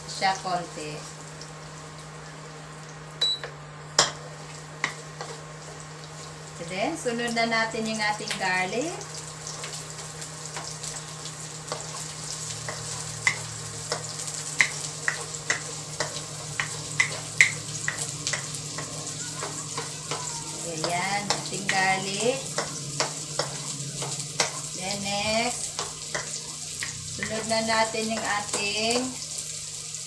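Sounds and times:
garlic and onions sizzling in oil: 0.0s - 30.0s
wooden spatula knocking on pan: 14.6s - 21.8s.

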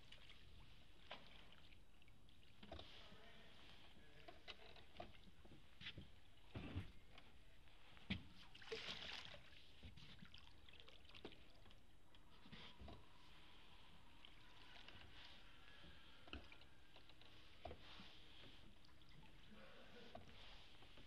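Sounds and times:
oar splash and trickle: 0.0s - 5.5s, 8.3s - 21.0s
water lapping: 0.0s - 7.1s, 8.4s - 21.0s
water drips: 8.5s - 17.0s.

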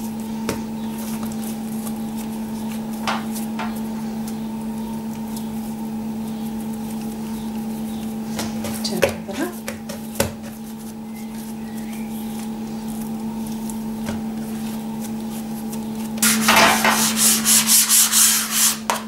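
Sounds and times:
hands kneading dough: 0.0s - 19.0s
steady low hum: 0.0s - 19.0s
loud rapid rubbing: 16.2s - 18.9s.

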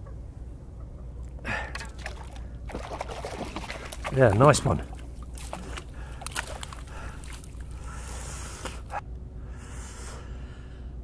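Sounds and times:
small water splashes: 1.7s - 8.2s.

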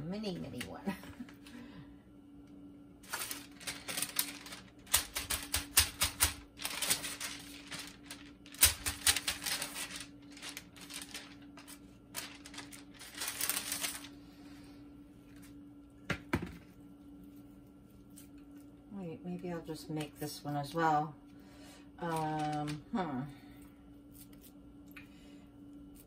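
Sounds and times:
paper crinkling: 3.0s - 14.2s, 22.0s - 22.8s.

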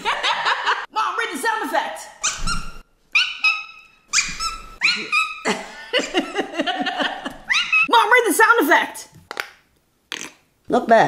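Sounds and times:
person imitating dog yelps: 3.2s - 5.5s.

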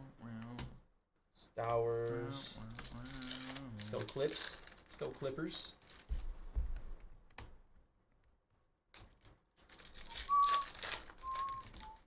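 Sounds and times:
foil wrapper tearing and crinkling: 2.6s - 6.2s, 9.1s - 12.0s
high whistle-like notes: 10.1s - 12.0s.

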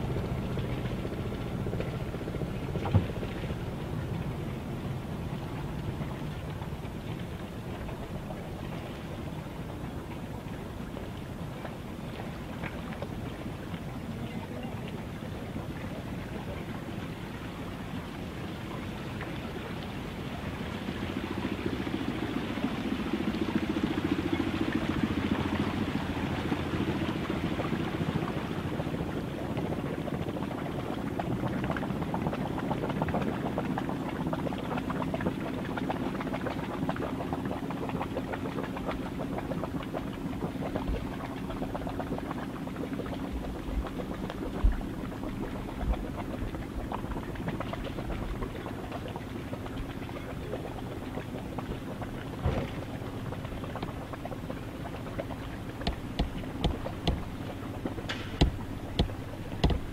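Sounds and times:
boat engine running: 0.0s - 59.9s
low thumps: 55.7s - 59.9s.

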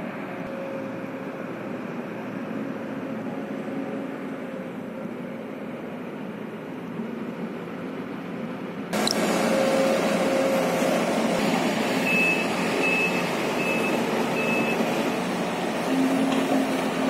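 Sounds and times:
excavator diesel engine running: 0.0s - 17.0s
high warning alarm beeps: 12.0s - 14.9s.

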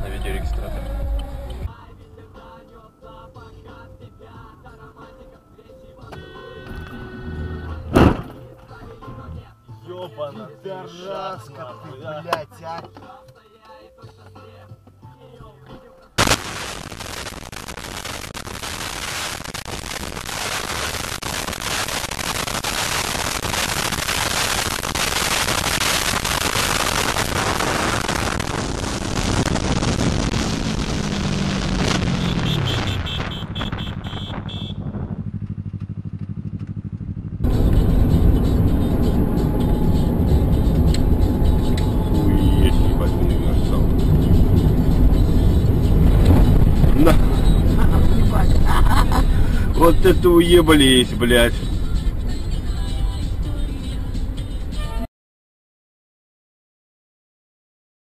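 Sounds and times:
vehicle engine: 0.0s - 1.7s, 26.2s - 54.4s
road noise: 0.0s - 2.3s, 4.5s - 13.0s, 16.2s - 55.0s
loud bang: 7.9s - 8.4s, 27.5s - 35.2s.

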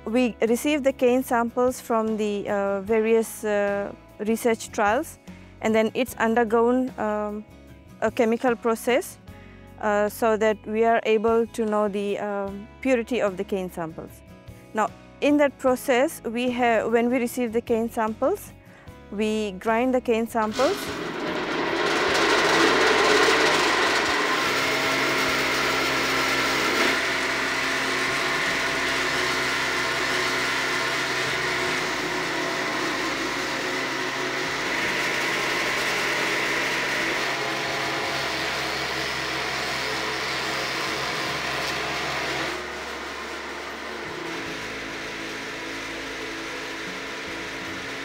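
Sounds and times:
sugarcane grinder whining: 20.4s - 48.0s.

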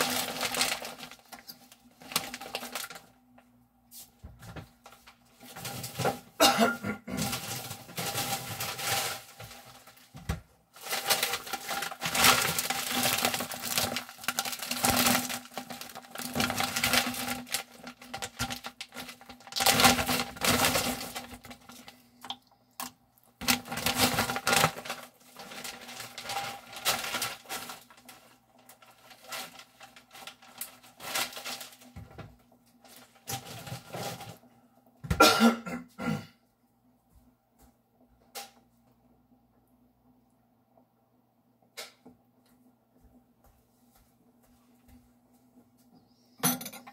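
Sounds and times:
water crackling as it heats: 0.0s - 3.5s, 10.8s - 33.8s.

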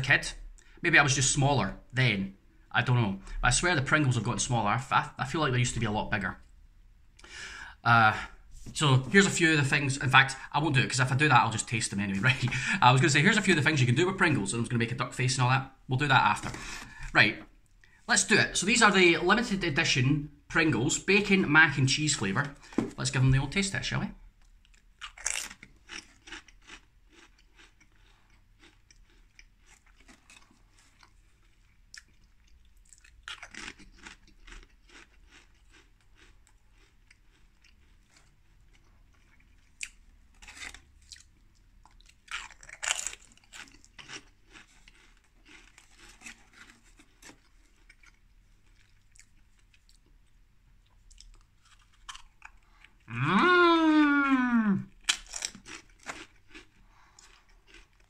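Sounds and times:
person chewing crisps: 24.3s - 58.0s.

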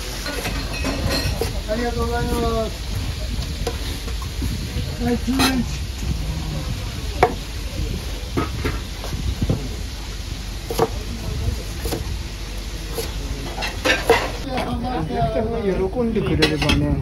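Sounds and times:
kitchen background noise: 0.0s - 17.0s
knife cutting fried cutlets: 10.7s - 12.1s, 12.8s - 14.4s.

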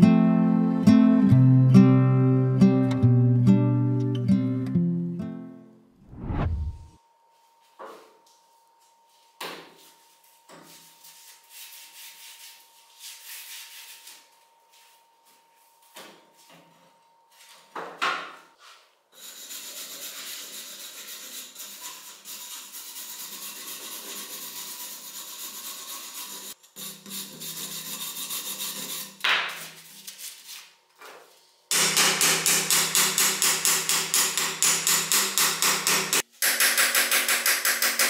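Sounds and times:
wire brush scrubbing rusty metal: 19.2s - 29.2s.

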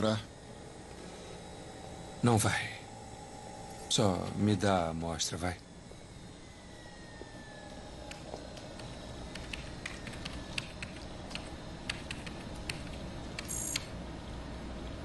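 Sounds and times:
low steady hum: 0.0s - 15.0s
computer keyboard clicks: 8.1s - 13.9s.

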